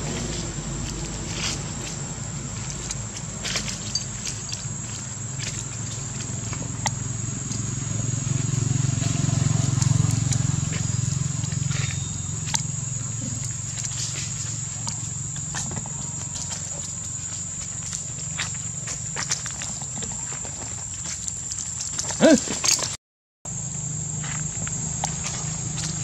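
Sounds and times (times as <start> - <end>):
high-pitched whine: 0.0 - 18.9
monkeys moving over dry leaves: 0.0 - 23.0, 24.3 - 26.0.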